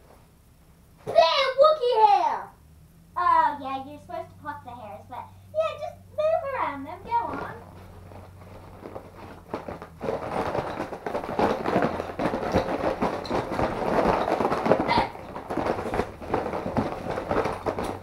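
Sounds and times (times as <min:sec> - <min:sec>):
rustling and crackling handling noise: 0:06.4 - 0:18.0.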